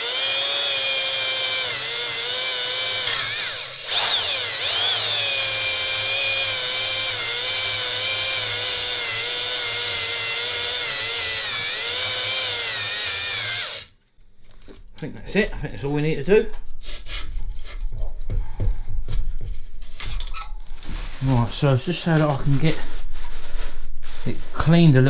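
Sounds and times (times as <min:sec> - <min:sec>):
electric drill motor whine: 0:00.0 - 0:13.9.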